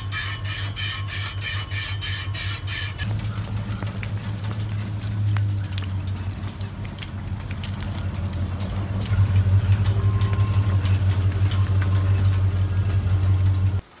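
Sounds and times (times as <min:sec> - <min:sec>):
truck engine idling: 0:00.0 - 0:13.8
raindrops pattering: 0:03.0 - 0:14.0.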